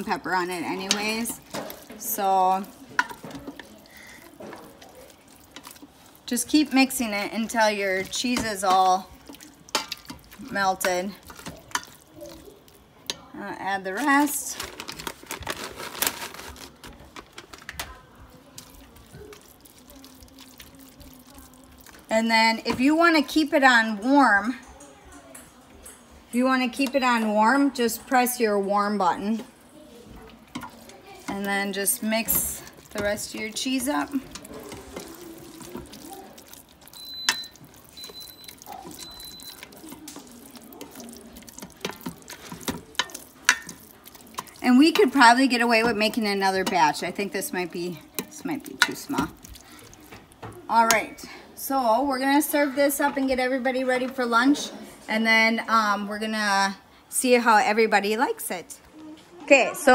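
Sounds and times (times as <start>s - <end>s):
spoon stirring wet noodles: 0.0s - 24.4s, 25.9s - 53.4s
plastic bag crinkling: 13.9s - 22.1s, 30.6s - 45.8s
cheese falling into pot: 30.5s - 45.1s.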